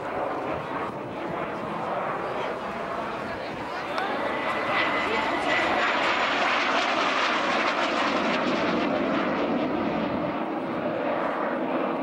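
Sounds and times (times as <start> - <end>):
jet roar overhead: 0.0 - 12.0.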